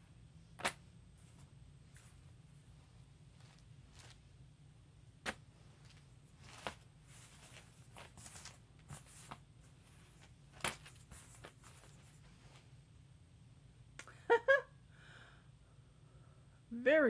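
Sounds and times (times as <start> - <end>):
fabric rustling: 0.6 - 4.5, 5.1 - 12.8.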